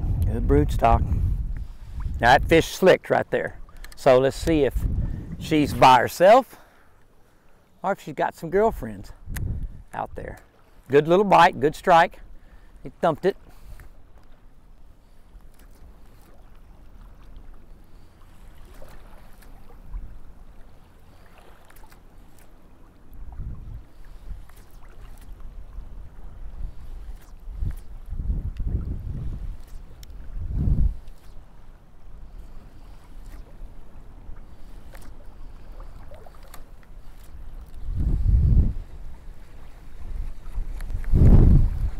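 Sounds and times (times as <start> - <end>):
wind buffeting microphone: 0.0 - 2.7, 3.9 - 6.3, 8.6 - 10.4, 23.1 - 24.5, 25.3 - 31.2, 37.0 - 41.9
small waves lapping: 0.0 - 41.9
faint clicks: 3.7 - 4.6, 29.6 - 30.2
faint ticks: 3.7 - 4.6, 29.5 - 30.2, 34.4 - 37.8.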